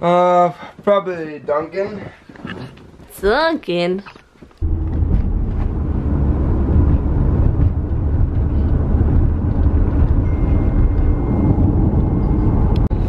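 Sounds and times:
car road and engine rumble: 4.6s - 13.0s.

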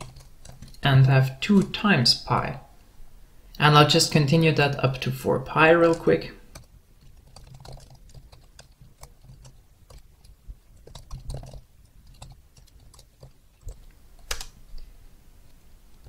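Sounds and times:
computer keyboard typing: 0.0s - 1.8s, 4.9s - 14.6s.

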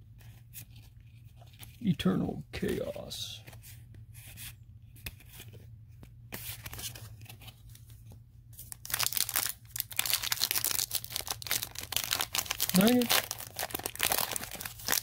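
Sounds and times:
foil wrapper tearing and crinkling: 8.7s - 15.0s.

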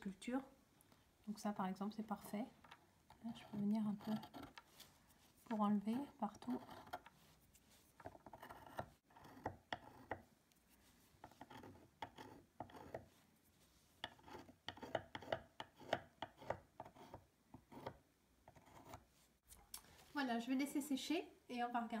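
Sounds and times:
engraving tool scratching wood: 3.1s - 4.9s, 5.5s - 10.3s, 11.2s - 13.1s, 14.0s - 19.1s.

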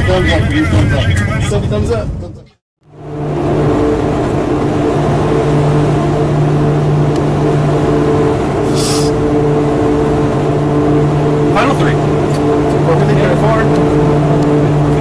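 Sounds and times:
turboprop engines droning: 0.0s - 15.0s.

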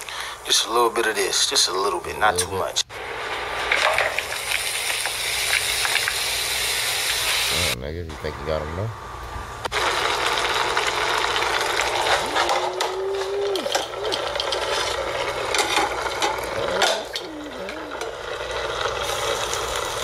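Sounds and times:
food sizzling in hot oil: 2.9s - 7.8s, 9.7s - 16.6s, 17.8s - 20.0s.

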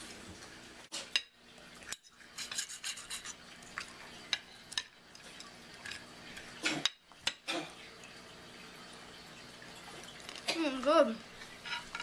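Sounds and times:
cutlery scraping on a ceramic plate: 2.0s - 3.4s, 11.6s - 12.0s.

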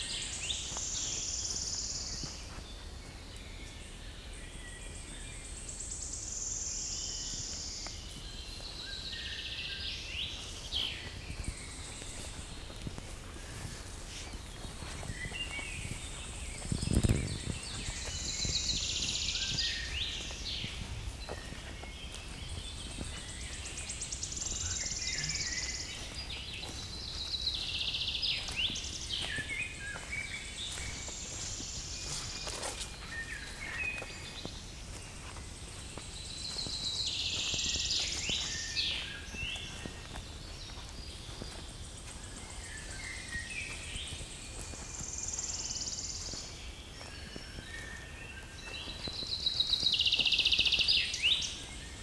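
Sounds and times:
footsteps on forest track: 0.0s - 52.0s
songbirds trilling: 0.0s - 52.0s.

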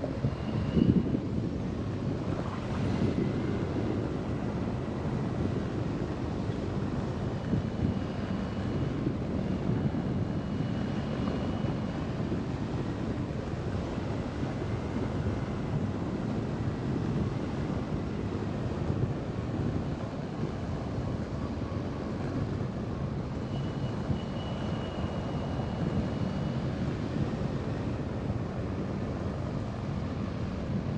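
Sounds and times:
faint high whistle: 23.4s - 26.6s.

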